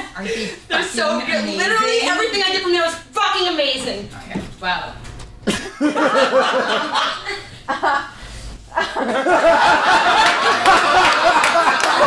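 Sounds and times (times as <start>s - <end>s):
audience laughing: 5.5s - 12.0s.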